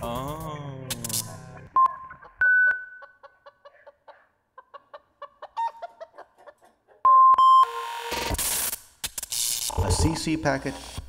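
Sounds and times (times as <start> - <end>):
chicken clucking: 3.0 - 7.1.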